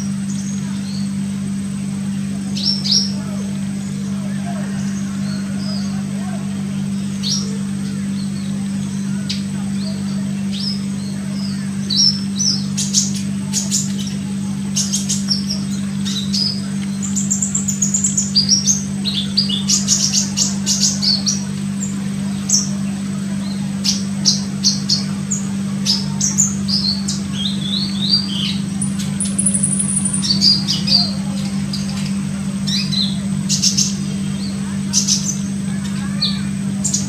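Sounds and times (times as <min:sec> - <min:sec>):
steady low hum: 0:00.0 - 0:37.0
bird chirping and twittering: 0:02.5 - 0:03.2, 0:03.8 - 0:06.0, 0:06.7 - 0:37.0.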